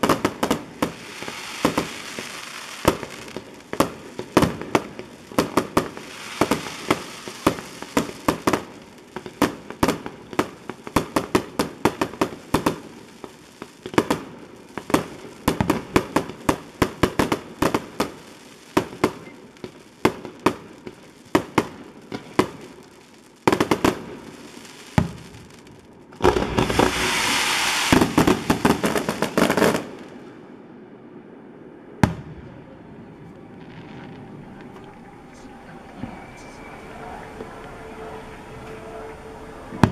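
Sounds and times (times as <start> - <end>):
fireworks bangs: 0.0 - 30.5, 31.9 - 39.9
fireworks crackling: 0.0 - 39.9
hissing rush: 26.2 - 29.3.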